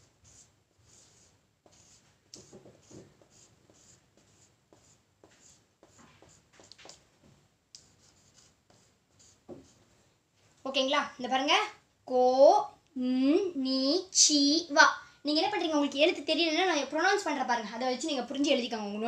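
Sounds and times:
marker squeaking on whiteboard: 0:00.2 - 0:07.0.

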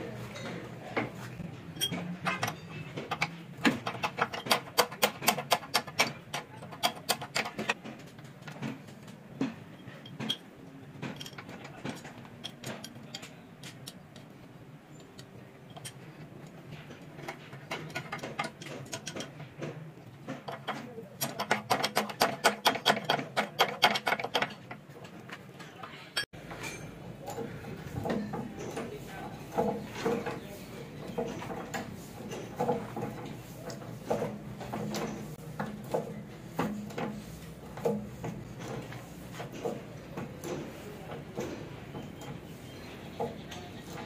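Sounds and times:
metal knocks and clatter: 0:00.4 - 0:13.9, 0:15.7 - 0:25.7, 0:26.3 - 0:44.0
hand tools clicking on metal: 0:01.8 - 0:08.7, 0:09.8 - 0:44.0.

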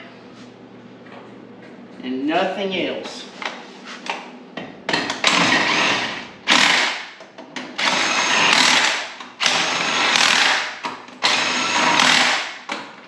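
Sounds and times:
impact wrench hammering: 0:06.5 - 0:12.8.

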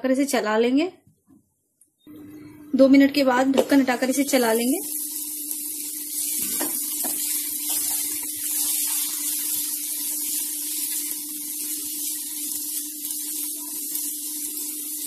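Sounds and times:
low steady hum: 0:02.0 - 0:11.9
vegetables sizzling in a pan: 0:03.6 - 0:15.0.

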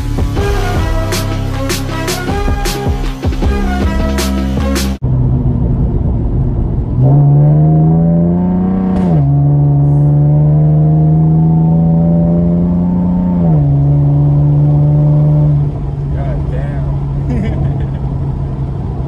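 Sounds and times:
car engine from inside cabin: 0:05.0 - 0:19.0.

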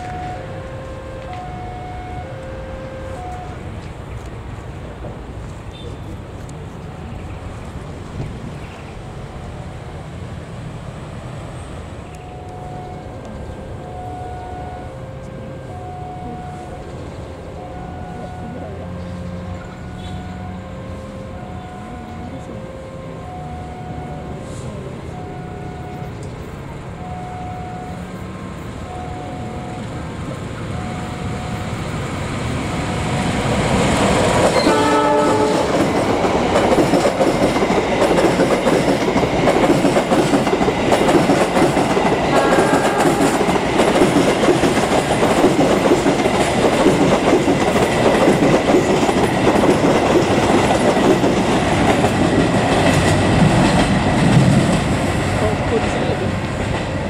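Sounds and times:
two-tone warning chime: 0:00.0 - 0:03.6, 0:12.1 - 0:32.0
locomotive horn blast: 0:00.0 - 0:03.8, 0:12.4 - 0:26.2, 0:34.1 - 0:36.0, 0:42.3 - 0:43.6
train wheels clattering on rails: 0:31.5 - 0:57.0.

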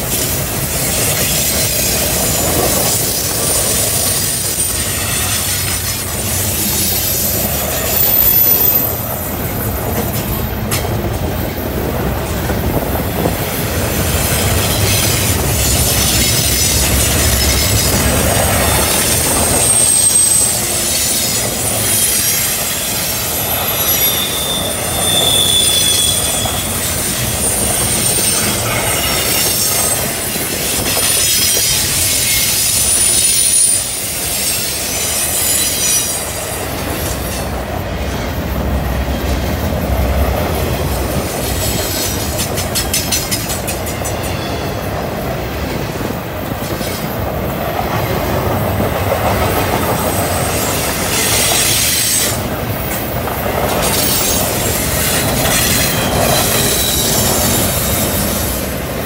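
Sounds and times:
freight train rolling past: 0:00.0 - 0:59.0
high-pitched wheel squeal: 0:03.1 - 0:09.1, 0:15.9 - 0:30.2, 0:53.9 - 0:58.5
wheels clicking over rail joints: 0:09.0 - 0:24.1, 0:34.2 - 0:58.6.

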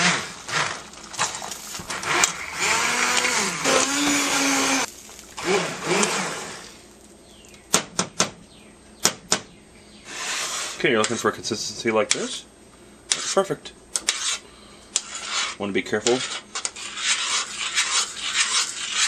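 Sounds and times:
immersion blender motor whine: 0:00.0 - 0:06.8.

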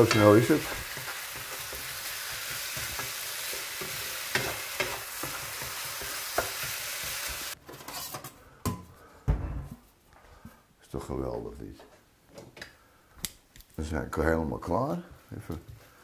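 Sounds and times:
noodles sizzling in a wok: 0:00.0 - 0:07.6.

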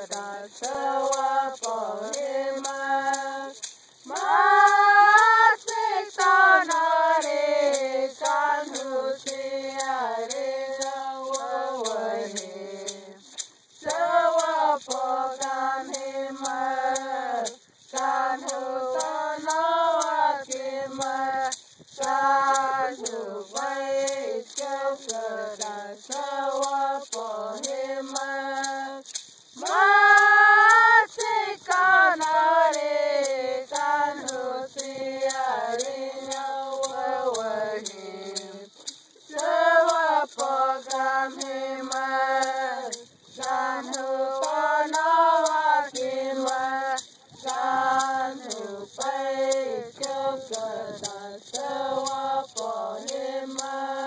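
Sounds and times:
fast ticking beat: 0:00.0 - 0:54.0.

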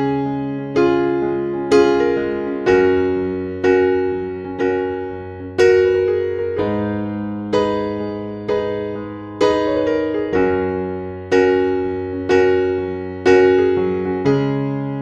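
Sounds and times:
slow solo piano: 0:00.0 - 0:15.0.

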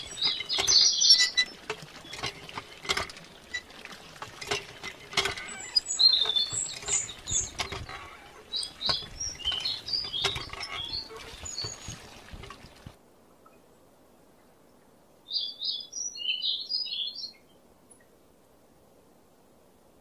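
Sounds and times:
hand pump lever clicking: 0:00.0 - 0:12.9
water trickling into pool: 0:00.0 - 0:15.0.

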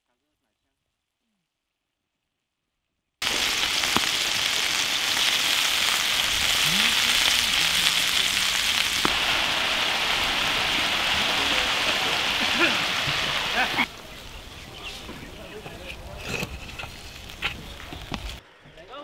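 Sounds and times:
sharp popping of frying: 0:03.2 - 0:15.4, 0:16.0 - 0:18.4
chicken wings sizzling in pan: 0:03.2 - 0:16.1.

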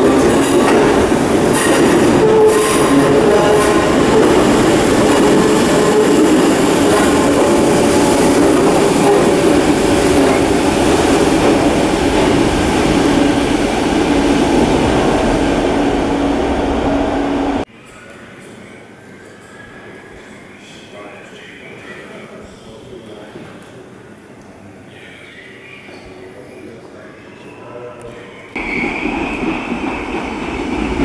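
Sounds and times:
electric train rumbling in tunnel: 0:00.0 - 0:20.4, 0:27.2 - 0:31.0.

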